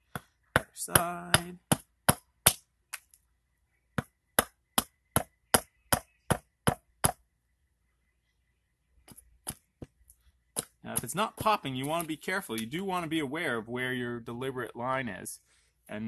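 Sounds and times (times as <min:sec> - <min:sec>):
hatchet chopping wood: 0:00.0 - 0:02.6, 0:04.0 - 0:07.2, 0:10.6 - 0:12.1.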